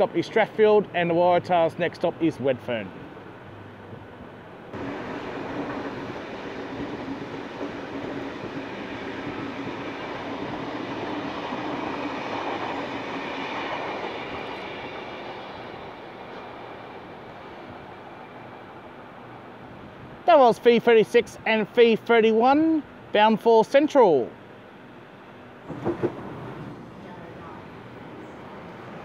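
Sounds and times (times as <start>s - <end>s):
electric train passing: 0.0s - 22.1s, 22.8s - 29.0s.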